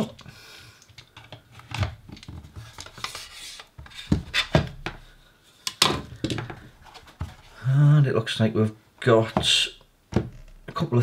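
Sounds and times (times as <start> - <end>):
rubbing and scraping: 2.2 - 4.7.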